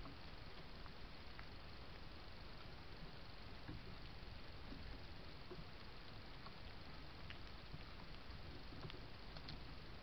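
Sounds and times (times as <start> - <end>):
background hiss: 0.0 - 10.0.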